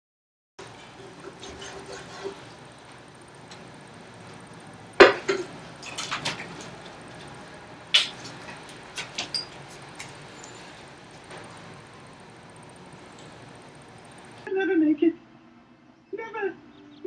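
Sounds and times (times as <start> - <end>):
dishes and glasses clinking: 9.0 - 10.7.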